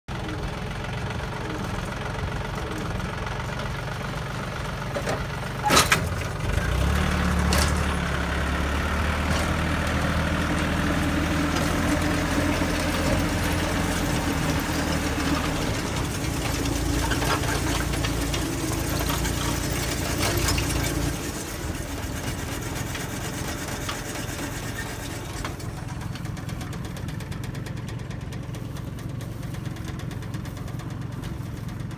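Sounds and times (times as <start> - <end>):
tractor engine running: 0.1 - 31.9.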